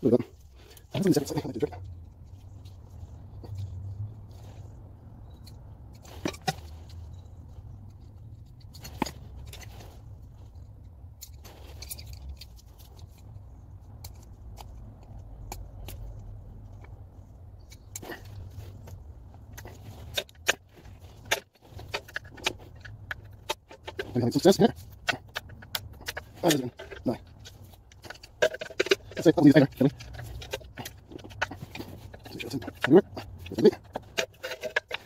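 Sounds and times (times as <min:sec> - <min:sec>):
hand tools tapping on metal: 0:17.6 - 0:35.0.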